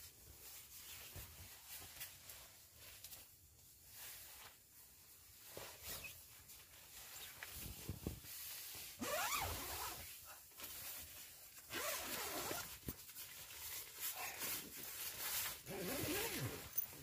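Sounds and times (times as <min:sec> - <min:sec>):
fabric rustling: 0:00.0 - 0:17.0
tent zipper rasping: 0:09.0 - 0:10.1, 0:11.7 - 0:12.8, 0:15.4 - 0:17.0.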